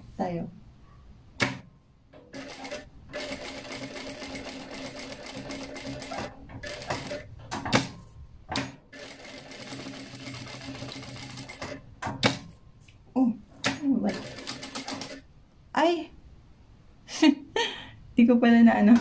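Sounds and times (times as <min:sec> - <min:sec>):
sewing machine stitching: 0:02.2 - 0:07.3, 0:08.6 - 0:12.4, 0:13.7 - 0:15.2.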